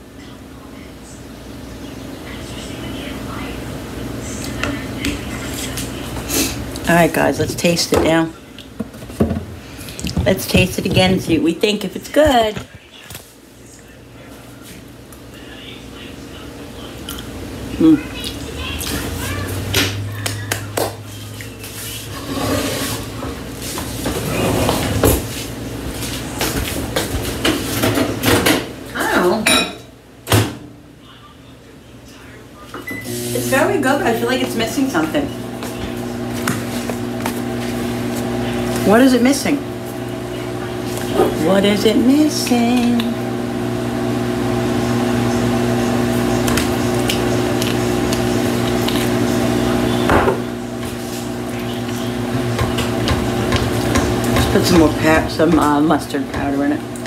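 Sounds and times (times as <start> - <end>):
kitchen appliance motor hum: 32.9 - 57.0.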